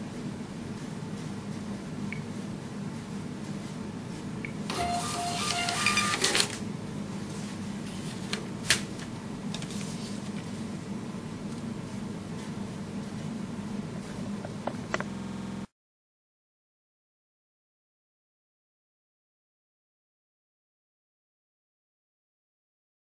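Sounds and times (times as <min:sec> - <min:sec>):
receipt printer paper feed whirring: 0:04.6 - 0:06.7
low steady hum: 0:06.6 - 0:15.7.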